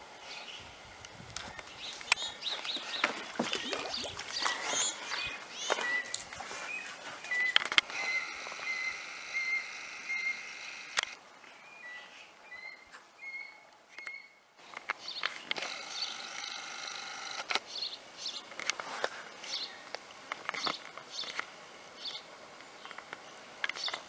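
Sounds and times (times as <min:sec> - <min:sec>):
water splashing: 0:02.6 - 0:05.4
baby beaver whining: 0:07.3 - 0:11.1
sharp clicks: 0:10.0 - 0:11.2.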